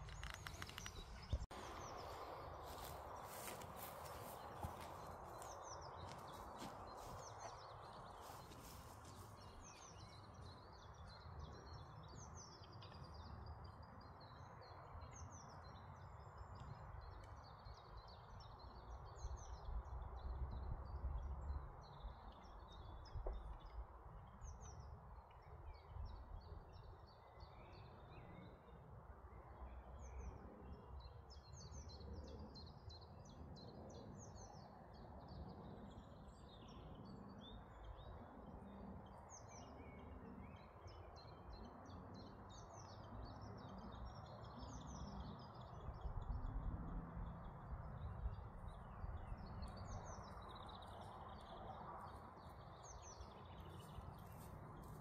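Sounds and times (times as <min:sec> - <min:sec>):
small birds chirping: 0:00.0 - 0:28.8, 0:47.3 - 0:55.0.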